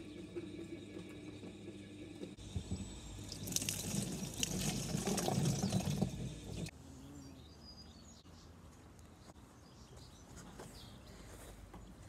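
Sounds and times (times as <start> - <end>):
water pouring into plastic can: 3.2 - 6.7.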